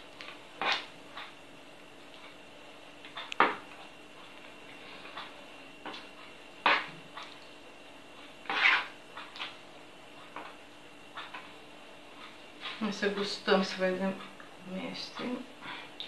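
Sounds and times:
utensil scraping wet dough: 0.6 - 0.9, 8.4 - 9.6.

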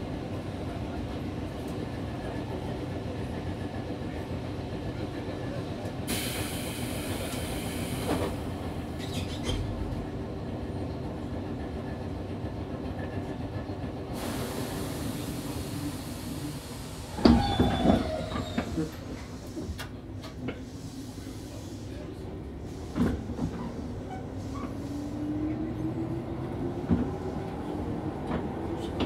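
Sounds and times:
train wheels rumbling on rails: 0.0 - 29.0
hiss: 6.1 - 9.4, 14.2 - 19.9, 20.6 - 21.9.

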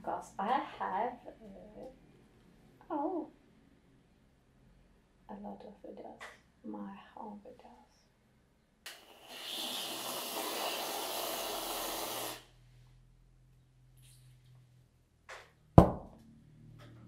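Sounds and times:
aerosol can hissing: 8.9 - 12.5.

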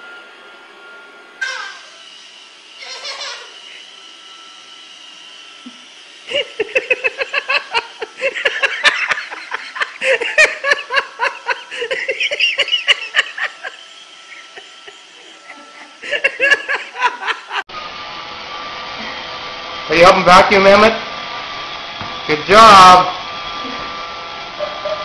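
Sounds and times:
robot vacuum whine: 0.0 - 25.0
hearty laughter: 6.3 - 17.6.

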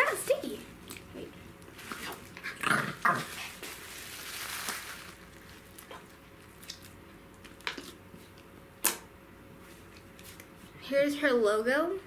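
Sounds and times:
soft rustle: 3.2 - 6.1.

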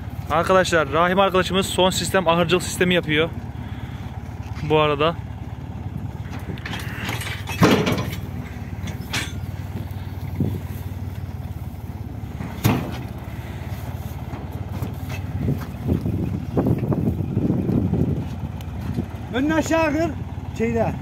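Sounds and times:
knocks and straw rustling: 0.0 - 19.8
tractor diesel engine running: 0.0 - 21.0
bale landing thump: 12.5 - 13.2.

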